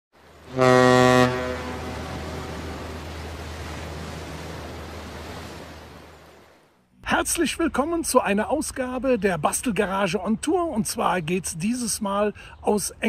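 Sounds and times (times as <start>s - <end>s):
ship's horn blast: 0.4s - 3.8s.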